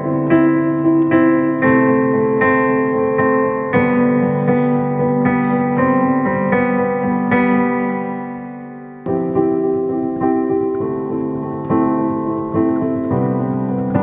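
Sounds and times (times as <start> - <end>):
soft piano chords: 0.0 - 14.0.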